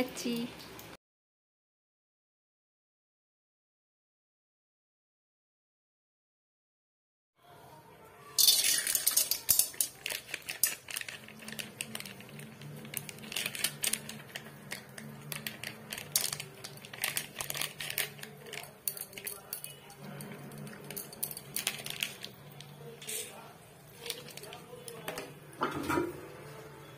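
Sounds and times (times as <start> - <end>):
popcorn packet crinkling: 8.4 - 25.1.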